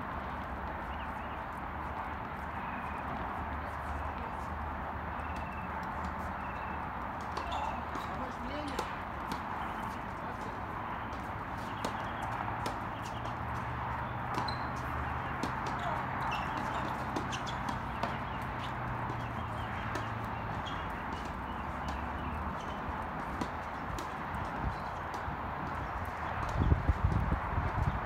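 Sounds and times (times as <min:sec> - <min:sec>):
tennis ball bouncing on court: 0:00.3 - 0:27.9
tennis ball hitting racket: 0:05.2 - 0:26.6.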